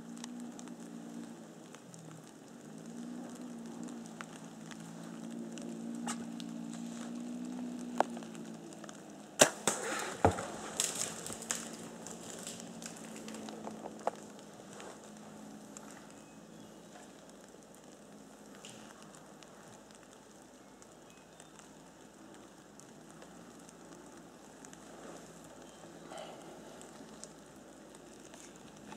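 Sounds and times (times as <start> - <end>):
bow release crack: 9.4 - 11.8
animal crashing through brush: 9.4 - 14.0.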